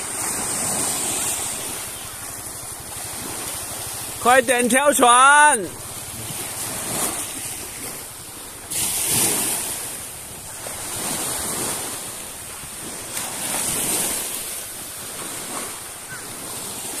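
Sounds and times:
sea water lapping in small waves: 0.0s - 17.0s.

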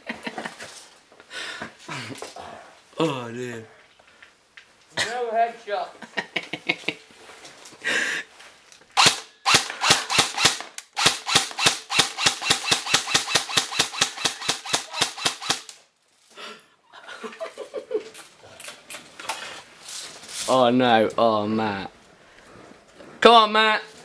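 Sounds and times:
airsoft rifle shots: 9.0s - 15.8s.

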